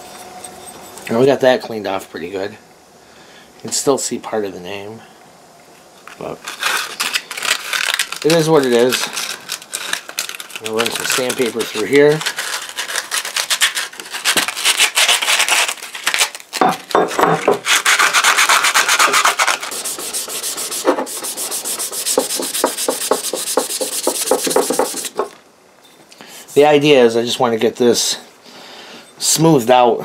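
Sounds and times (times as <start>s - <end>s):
sandpaper rubbing on steel: 10.8s - 15.8s, 17.6s - 25.3s
knocks: 16.6s - 17.6s, 22.6s - 25.4s.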